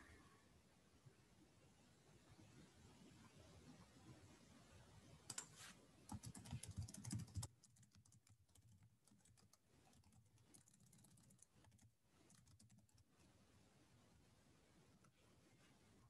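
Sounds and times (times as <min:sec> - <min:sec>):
faint typing on keyboard: 0:05.1 - 0:13.4.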